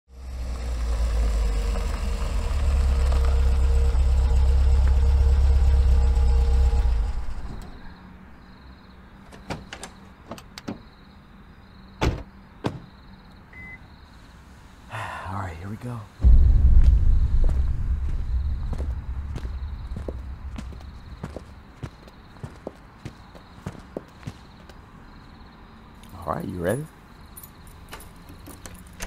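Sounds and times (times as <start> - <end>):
car rumble: 0.1 - 11.0, 16.2 - 23.0.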